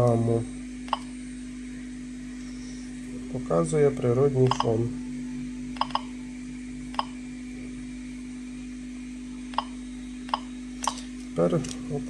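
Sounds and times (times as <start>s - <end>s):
steady low hum: 0.0s - 12.0s
geiger counter clicking: 4.5s - 4.8s, 5.8s - 6.1s, 6.9s - 7.2s, 9.5s - 11.0s.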